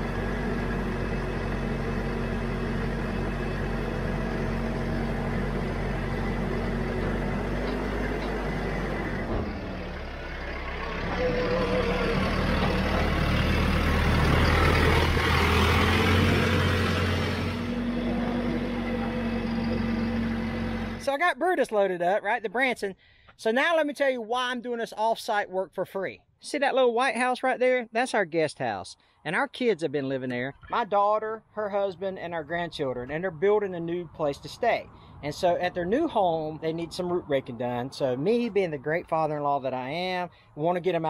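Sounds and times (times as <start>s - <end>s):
tractor engine running: 0.0s - 21.8s.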